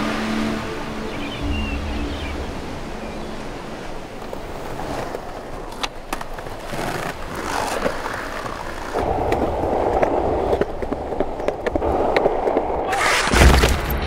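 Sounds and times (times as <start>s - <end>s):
skateboard wheels rolling on concrete: 3.7s - 14.0s.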